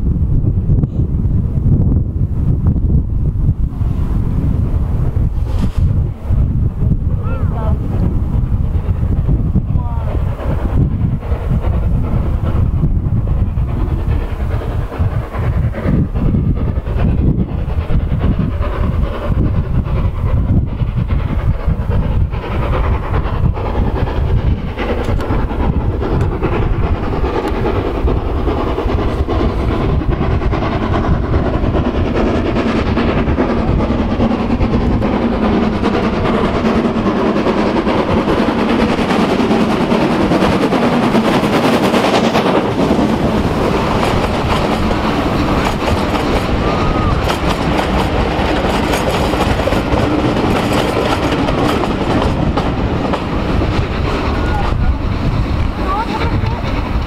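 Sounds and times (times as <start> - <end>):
steam locomotive passing: 0.0 - 57.0
wheels clattering over rail joints: 32.2 - 57.0.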